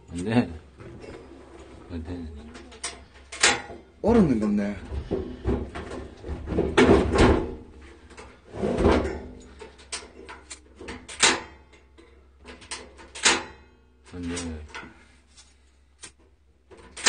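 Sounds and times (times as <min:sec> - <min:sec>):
objects knocking and clattering: 0:04.5 - 0:15.0.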